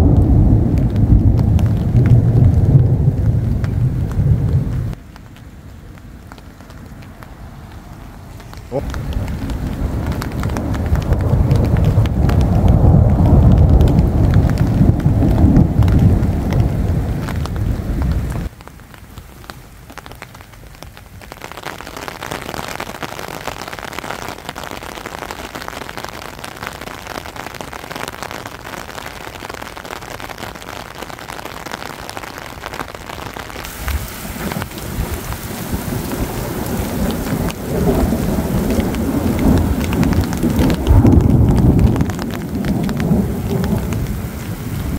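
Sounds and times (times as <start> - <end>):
thunder rumbling: 0.0 - 5.0, 8.5 - 18.5, 32.2 - 44.9
heavy rain hissing: 0.0 - 44.9.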